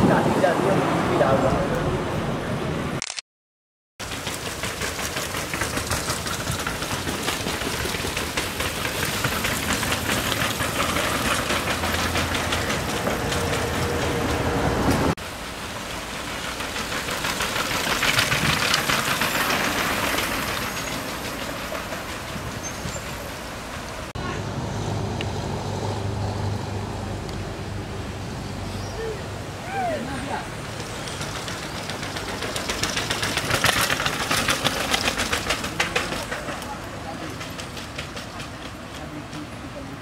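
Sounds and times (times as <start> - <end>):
rattling clattering noise: 4.0 - 14.5, 30.7 - 39.5.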